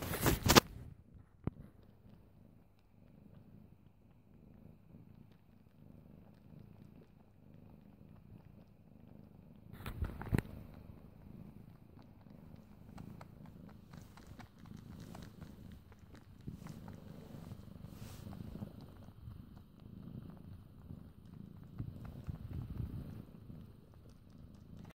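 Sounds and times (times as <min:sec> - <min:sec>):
rustle and thump: 0:00.0 - 0:00.8, 0:09.7 - 0:10.6
cat purring: 0:00.0 - 0:24.9.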